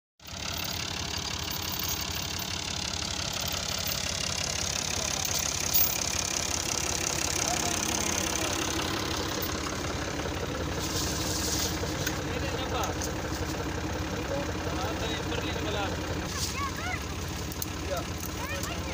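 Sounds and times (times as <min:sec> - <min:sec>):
tractor diesel engine idling: 0:00.2 - 0:18.9.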